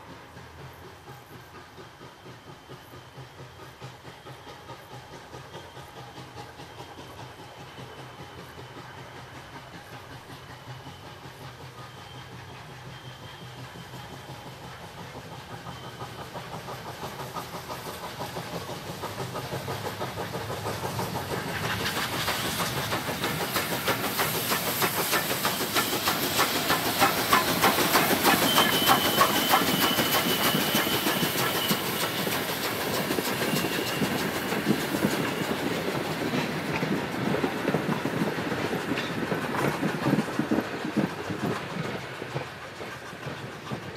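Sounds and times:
coaches clickety-clack: 0.0s - 43.9s
steam locomotive exhaust beats: 0.0s - 43.9s
thin high squeal: 27.4s - 32.2s.

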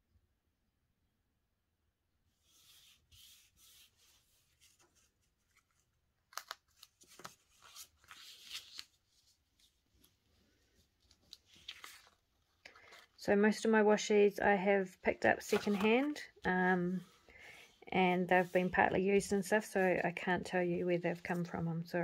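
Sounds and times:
tape rubbing on paper: 2.4s - 5.8s
paper crackling and tapping: 3.2s - 13.2s, 15.3s - 16.5s.

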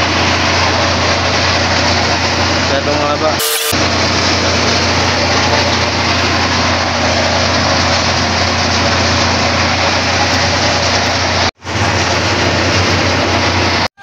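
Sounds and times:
diesel truck engine idling: 0.0s - 14.0s.

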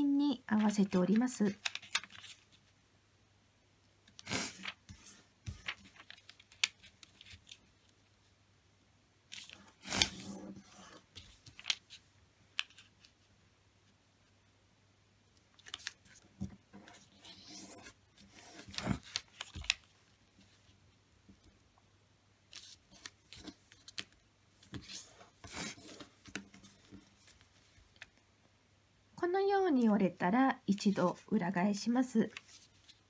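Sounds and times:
paper being folded and creased: 0.6s - 2.7s, 4.1s - 8.0s, 9.3s - 13.2s, 15.5s - 20.7s, 22.5s - 28.2s, 32.3s - 33.0s.

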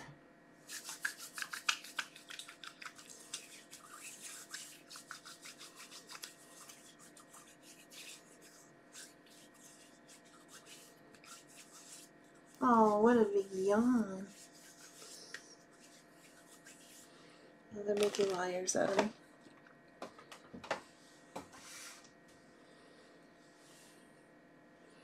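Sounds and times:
hands rubbing together: 0.7s - 17.2s.

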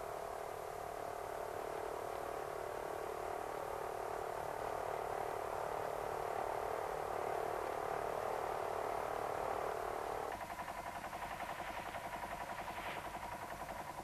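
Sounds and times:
tractor diesel engine running: 10.3s - 14.0s.

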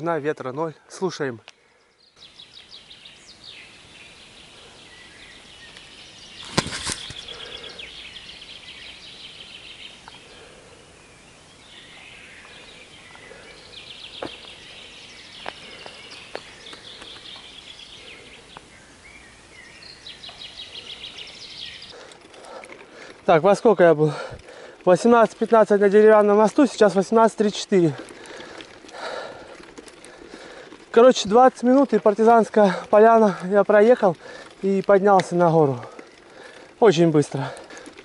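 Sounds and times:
small birds singing: 0.0s - 38.0s
faint clicks: 27.9s - 31.0s.

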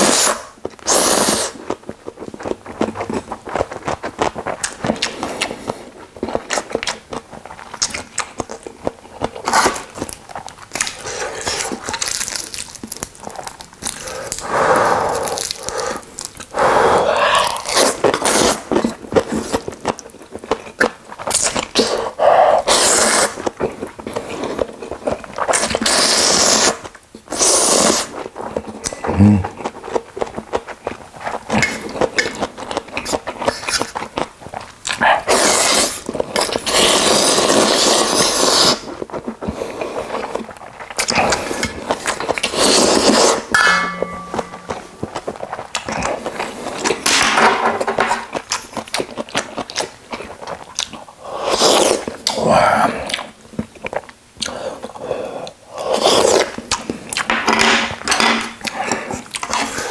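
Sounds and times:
person slurping noodles: 0.0s - 1.6s, 14.0s - 19.6s, 21.8s - 23.4s, 28.9s - 29.6s, 35.2s - 36.0s, 36.6s - 40.4s, 41.1s - 43.5s, 54.5s - 56.6s
chewing: 0.1s - 47.0s, 48.0s - 57.3s, 58.6s - 59.9s.

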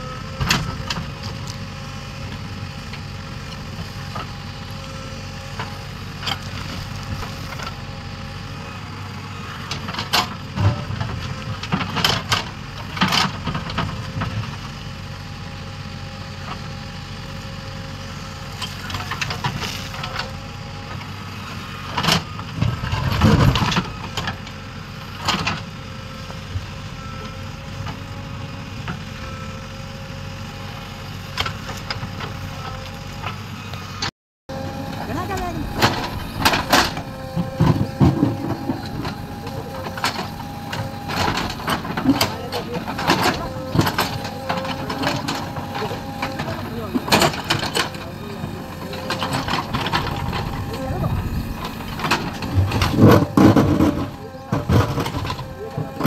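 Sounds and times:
diesel engine running: 0.0s - 56.0s
bucket clanking and scraping rock: 35.2s - 40.2s, 40.9s - 56.0s.

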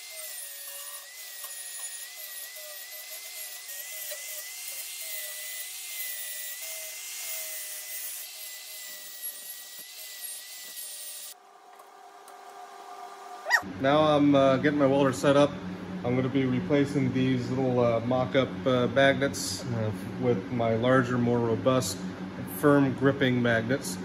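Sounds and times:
angle grinder grinding metal: 0.0s - 11.4s.

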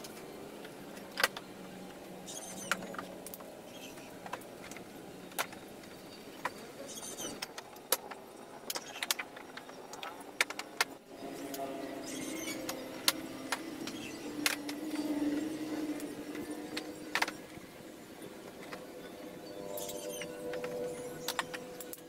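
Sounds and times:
engine hum: 0.0s - 22.0s.

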